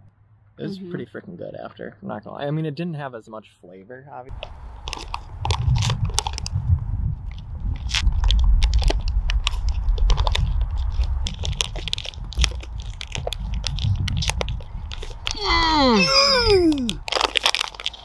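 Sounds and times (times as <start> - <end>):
plastic pouches crinkling: 4.3 - 6.5, 7.8 - 18.0
low rumble: 4.3 - 18.0.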